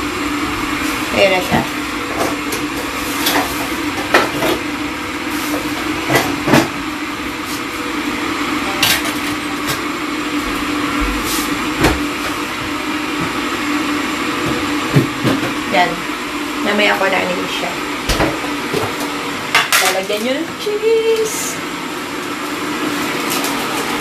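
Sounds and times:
extractor fan humming: 0:00.0 - 0:24.0
dishes and utensils clinking: 0:08.7 - 0:09.8.

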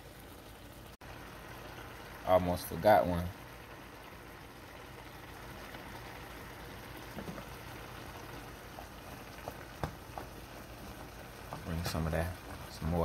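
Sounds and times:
soup bubbling in pot: 0:00.0 - 0:13.0.

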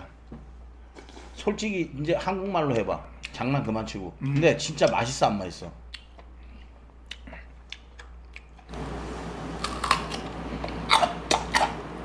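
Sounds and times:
man chewing crunchy food: 0:05.9 - 0:08.7, 0:09.6 - 0:11.8.

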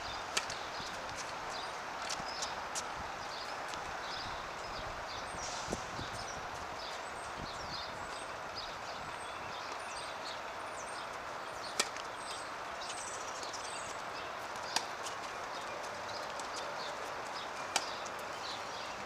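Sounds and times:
birds chirping: 0:00.0 - 0:19.0
tennis racket striking ball: 0:17.7 - 0:18.0.

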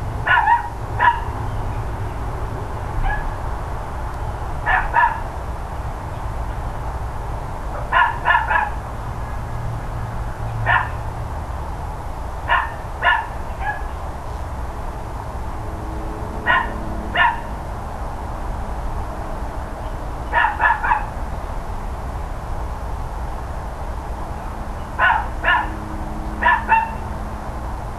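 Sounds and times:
dog barking: 0:00.2 - 0:01.3, 0:03.0 - 0:03.4, 0:04.6 - 0:05.3, 0:07.8 - 0:08.8, 0:10.6 - 0:11.0, 0:12.5 - 0:14.0, 0:16.4 - 0:17.5, 0:20.3 - 0:21.1, 0:25.0 - 0:25.8, 0:26.4 - 0:27.0.

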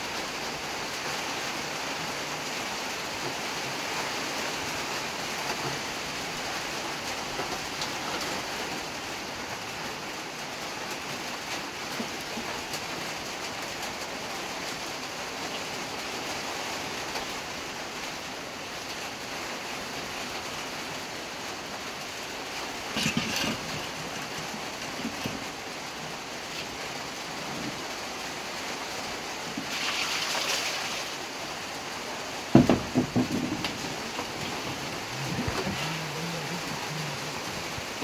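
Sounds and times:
pots and pans clanking: 0:22.9 - 0:25.4
rushing hiss: 0:29.6 - 0:31.4.

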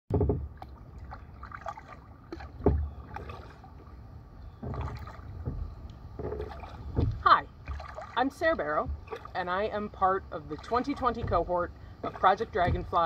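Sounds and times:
paddle pulling through water: 0:00.1 - 0:13.0
water dripping and splashing: 0:00.5 - 0:04.0, 0:04.6 - 0:13.0
low thump: 0:02.6 - 0:02.9, 0:12.6 - 0:13.0.

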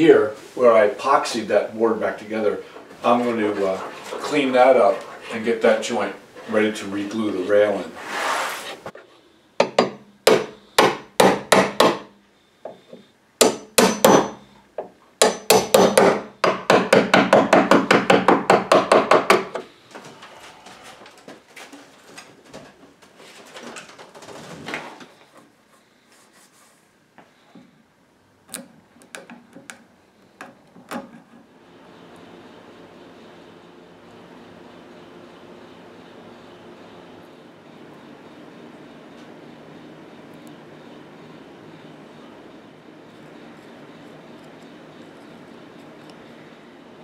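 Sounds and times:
hammer striking chisel on wood: 0:09.6 - 0:12.1, 0:12.7 - 0:19.7.

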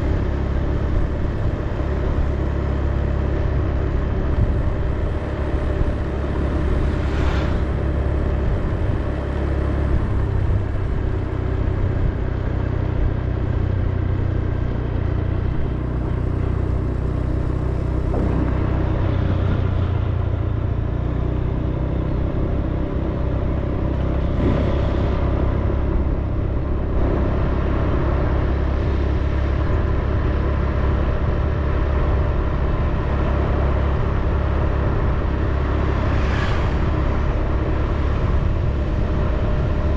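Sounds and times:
vehicle engine rumble: 0:00.0 - 0:39.9
vehicles passing by: 0:00.0 - 0:39.9
wind on microphone: 0:24.1 - 0:27.5.

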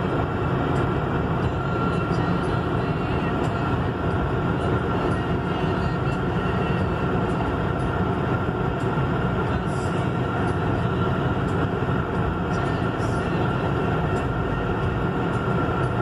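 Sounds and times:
car cabin road and engine drone: 0:00.0 - 0:16.0.

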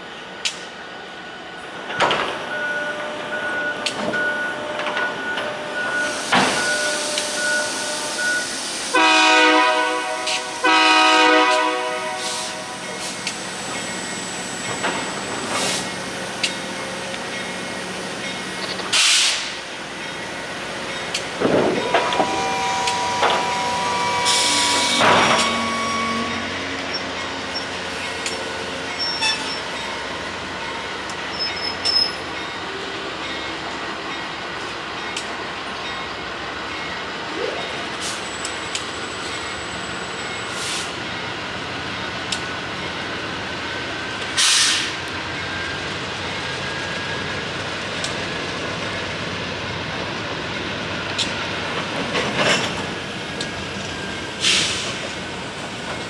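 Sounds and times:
slow train rumbling: 0:00.0 - 0:56.0
locomotive air horn blasts: 0:08.9 - 0:12.8, 0:21.8 - 0:26.6.

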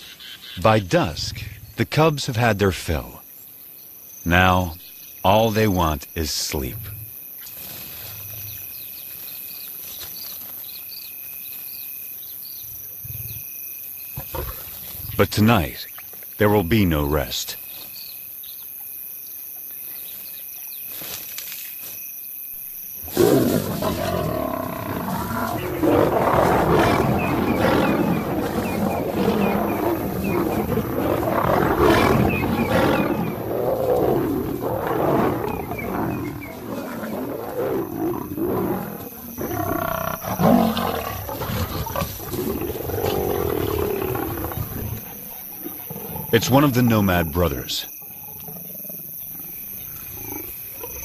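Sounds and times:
crickets chirping: 0:00.0 - 0:51.0
lions growling and roaring: 0:14.2 - 0:15.4, 0:23.0 - 0:51.0.

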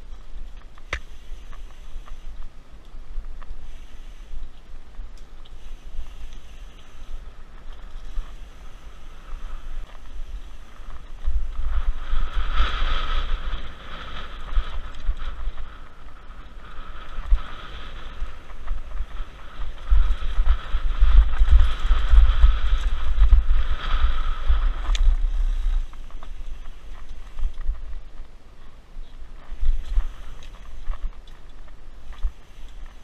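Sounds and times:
bike rattling: 0:00.0 - 0:33.0
wind buffeting on microphone: 0:00.0 - 0:33.0
tyres hissing on dirt: 0:03.5 - 0:11.4.

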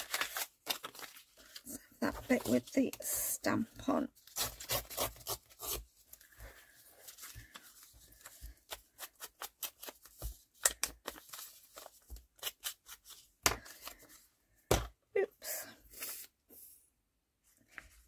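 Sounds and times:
paper rustling and tapping: 0:09.7 - 0:12.5.

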